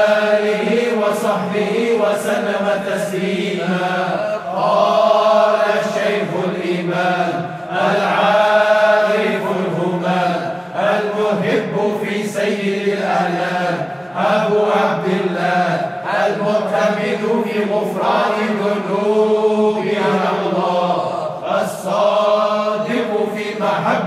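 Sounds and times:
voices chanting: 0.0s - 24.0s.

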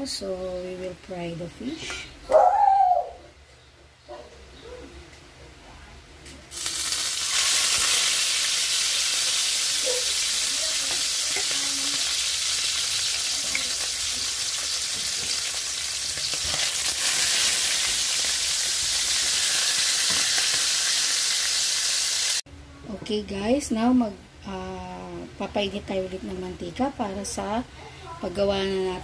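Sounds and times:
fish sizzling in hot oil: 6.5s - 22.4s.

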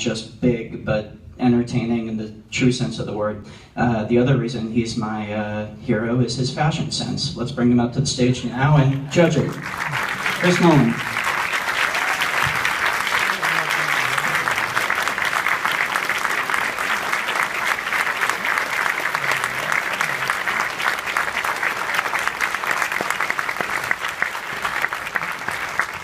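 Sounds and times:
audience applauding: 9.2s - 26.0s.

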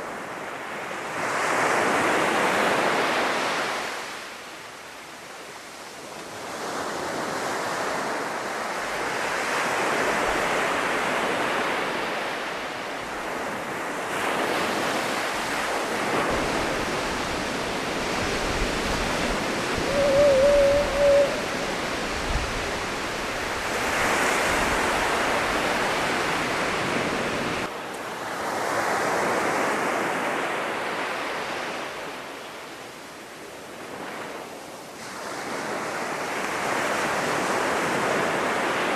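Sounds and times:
surf breaking on a sandy beach: 6.0s - 32.4s
short wavering call: 19.5s - 22.0s.

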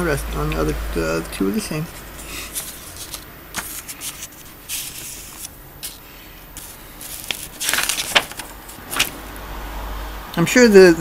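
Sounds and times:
paper pages rustling: 1.9s - 9.2s.

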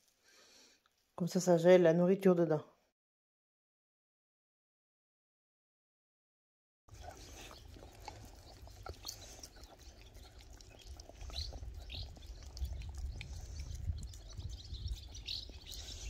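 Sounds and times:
birds chirping: 6.9s - 16.0s.

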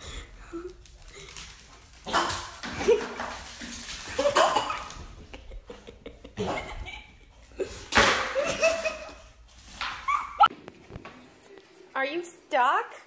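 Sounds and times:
person laughing: 4.2s - 9.3s.

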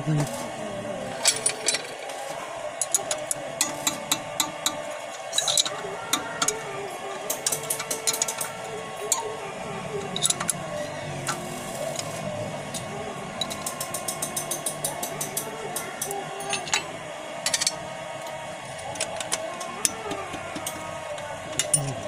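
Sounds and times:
ratchet wrench clicking: 2.8s - 6.6s, 7.3s - 9.3s, 10.0s - 10.6s, 13.4s - 16.8s, 19.0s - 21.9s.

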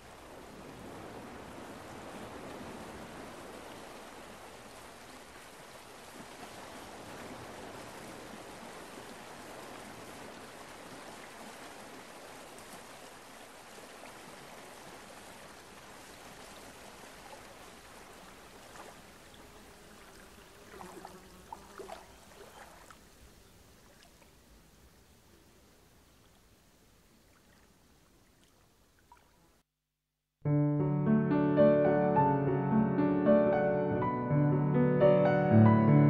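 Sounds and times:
sea waves rushing: 0.0s - 23.0s.

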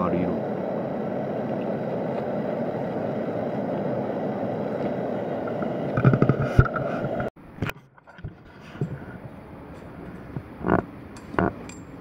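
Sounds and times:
steady rushing noise: 0.0s - 7.4s.

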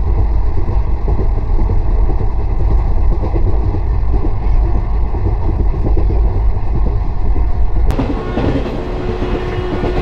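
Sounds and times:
train rumbling at speed: 0.0s - 10.0s.

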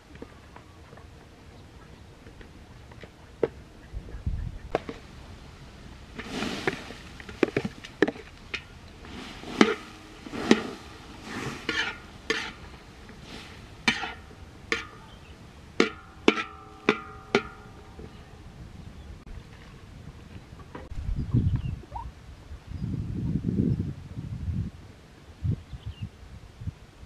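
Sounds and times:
utensil scraping a pot: 6.2s - 15.2s.

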